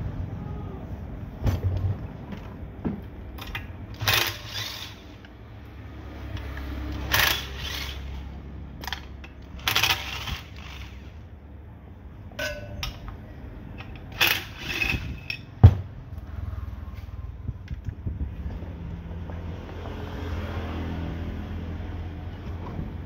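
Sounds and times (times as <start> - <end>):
metal tools clinking and scraping: 12.4 - 15.6.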